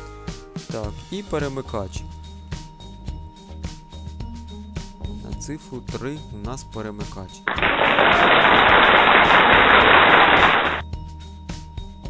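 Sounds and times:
background music with bass line: 0.0 - 6.7.

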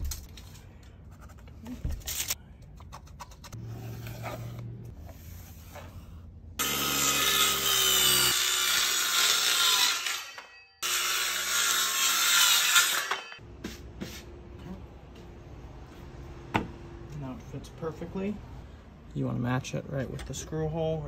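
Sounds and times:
circular saw cutting plywood: 6.6 - 13.4.

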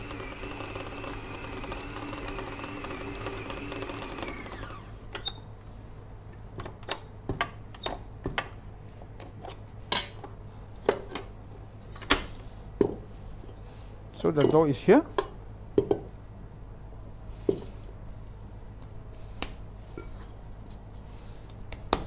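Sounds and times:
stand mixer motor running: 0.0 - 5.0.

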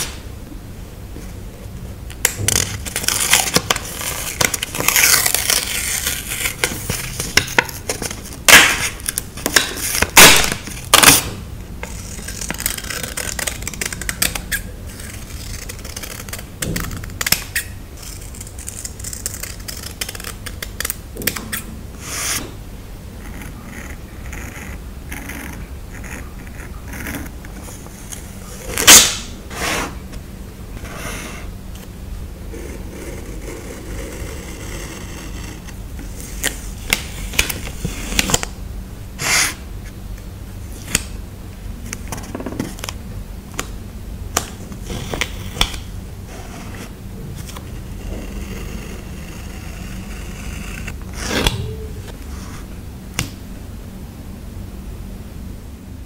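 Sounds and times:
paper crinkles: 2.5 - 10.6.

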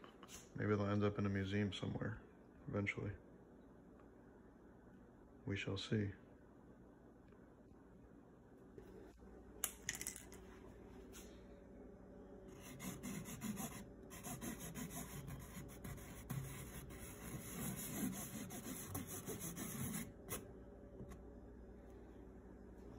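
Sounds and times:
marker scratching on canvas: 12.5 - 20.4.

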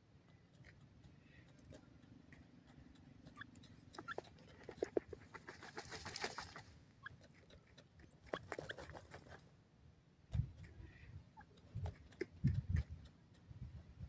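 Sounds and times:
soft clicks: 0.0 - 5.3.

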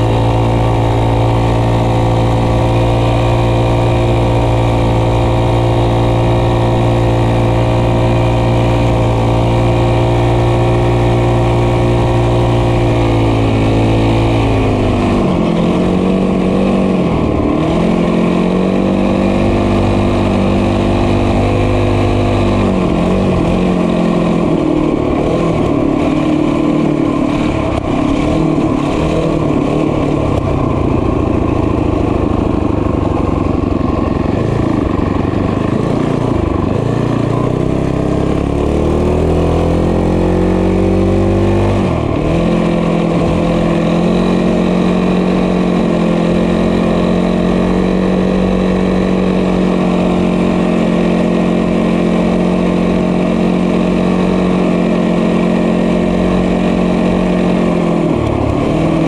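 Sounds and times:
small motorbike engine running: 0.0 - 59.0.

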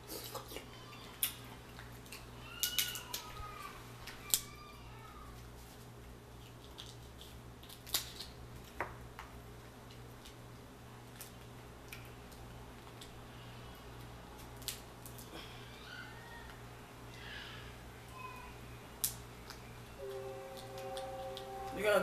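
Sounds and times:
crab shell cracking: 1.2 - 3.3, 6.4 - 8.8, 14.0 - 15.3
low steady hum: 8.4 - 22.0.

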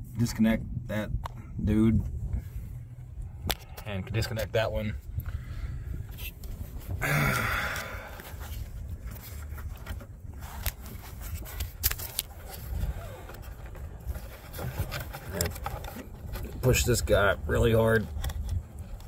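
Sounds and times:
low steady rumble: 0.0 - 19.0
hands scraping plastic hose: 8.1 - 16.9.

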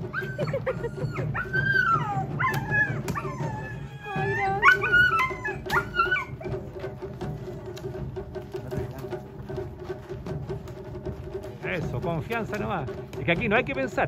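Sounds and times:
dog whining and howling: 0.0 - 6.6.

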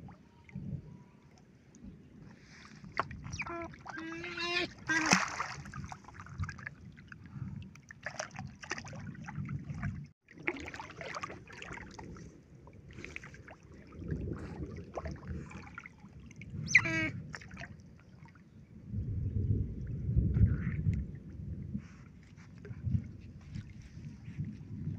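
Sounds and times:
water sloshing and splashing: 0.0 - 19.1, 19.7 - 24.9
high-pitched otter call: 16.6 - 17.1.

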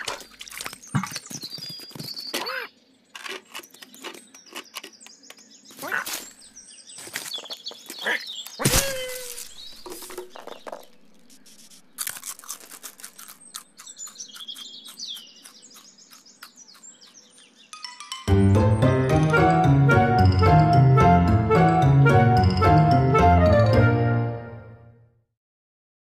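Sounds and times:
birds chirping: 0.1 - 20.9
music: 17.7 - 25.3.

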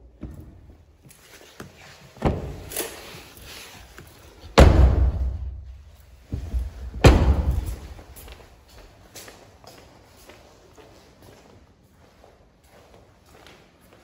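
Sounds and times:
car door thudding: 4.6 - 5.4, 7.0 - 7.8.

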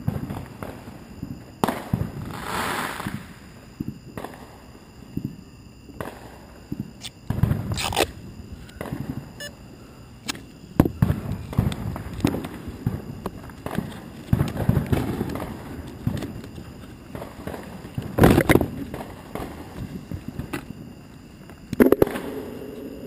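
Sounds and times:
fireworks booming and cracking: 0.0 - 7.8, 8.8 - 9.4, 10.8 - 21.0
firework hissing burst: 1.9 - 3.5.

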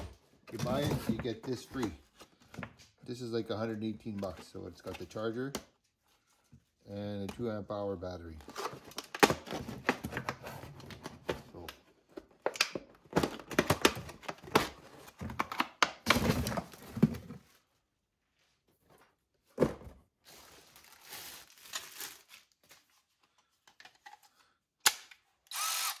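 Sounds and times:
plastic packaging crinkling: 20.3 - 23.0
cordless ratchet motor whirring: 25.5 - 26.0.

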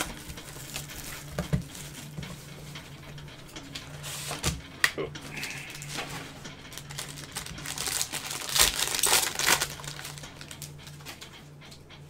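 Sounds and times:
foil pack crinkling and tearing: 0.0 - 2.1, 5.3 - 10.8.

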